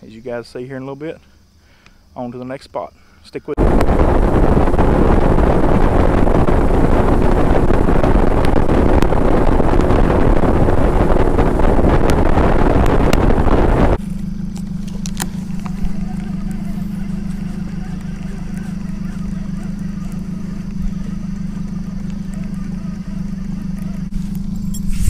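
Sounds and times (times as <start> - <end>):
wind on microphone: 3.6 - 14.0
low hum: 3.6 - 25.0
outboard motor running: 3.6 - 25.0.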